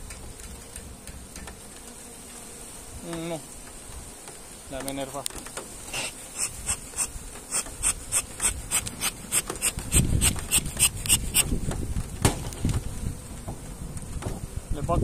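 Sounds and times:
bees buzzing: 0:00.0 - 0:14.9
sharp ticks: 0:06.4 - 0:11.5.

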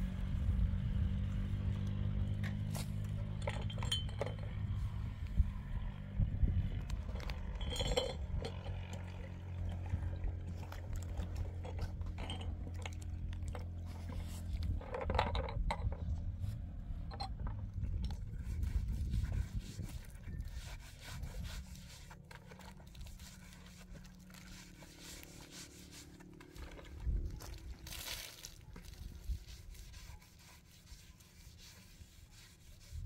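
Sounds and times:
clinks and knocks of hard objects: 0:02.6 - 0:04.8, 0:07.0 - 0:09.1, 0:11.4 - 0:13.8, 0:14.7 - 0:16.0, 0:17.0 - 0:17.7.

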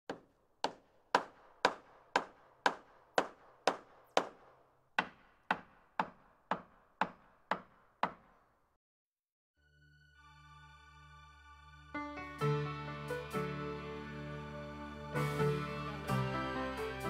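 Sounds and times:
sharp hammer-like knocks: 0:00.1 - 0:08.5.

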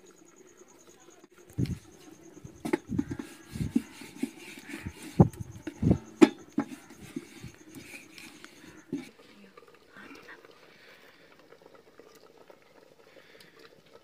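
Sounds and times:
dull knocks and thumps: 0:01.5 - 0:09.2.

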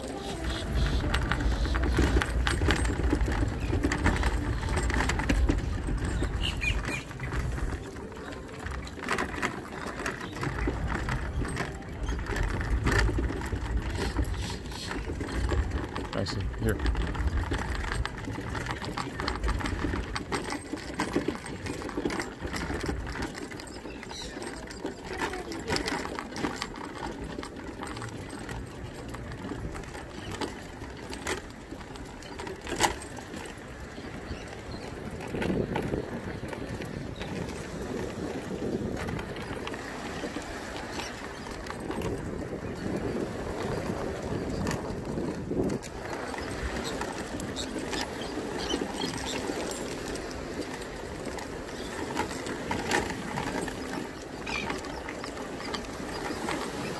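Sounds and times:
wind buffeting microphone: 0:00.0 - 0:26.3, 0:27.1 - 0:56.9
wheels rattling over wooden boards: 0:00.0 - 0:56.9.

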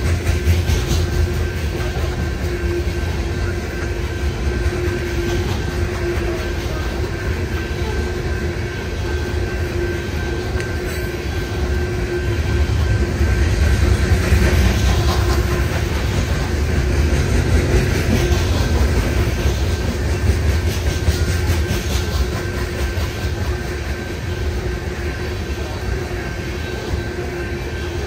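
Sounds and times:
wheels clacking on rail joints: 0:00.0 - 0:09.4, 0:10.3 - 0:25.7
freight train wheels rumbling: 0:00.0 - 0:28.0.

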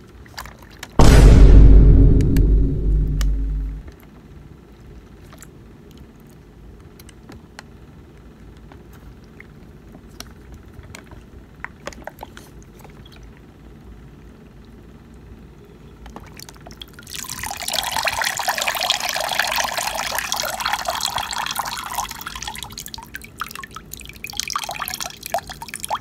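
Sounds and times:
low steady hum: 0:01.0 - 0:04.0, 0:12.6 - 0:26.0.

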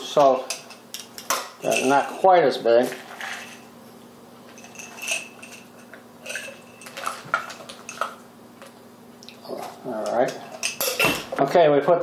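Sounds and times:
glass jar clinking and rattling: 0:01.6 - 0:02.1, 0:04.6 - 0:08.2.

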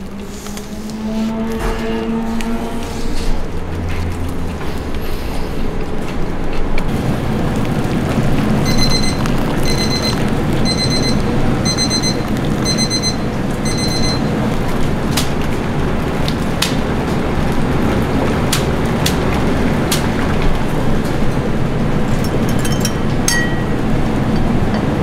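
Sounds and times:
steaming noodle boiler: 0:00.0 - 0:25.0
electronic timer beeping: 0:08.6 - 0:14.3.

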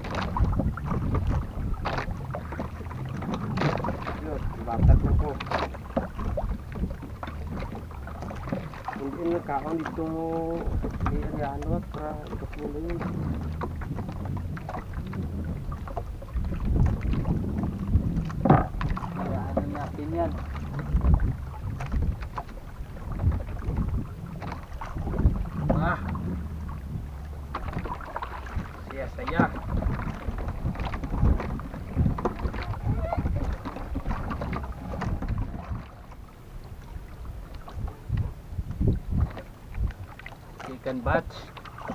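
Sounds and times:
water lapping against boat hull: 0:00.0 - 0:41.9
wind rumble on microphone: 0:00.0 - 0:41.9
low hum: 0:11.8 - 0:28.9.

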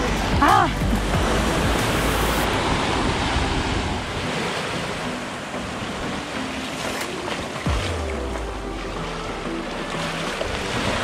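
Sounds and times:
wind rumbling on microphone: 0:00.0 - 0:06.2
surf washing onto beach: 0:01.0 - 0:11.0.

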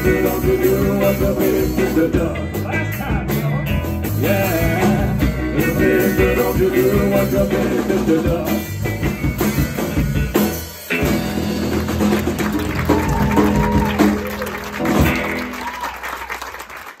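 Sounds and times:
bending electric guitar line: 0:00.0 - 0:16.0
live rock band playing: 0:00.0 - 0:17.0
audience applause: 0:11.4 - 0:17.0.

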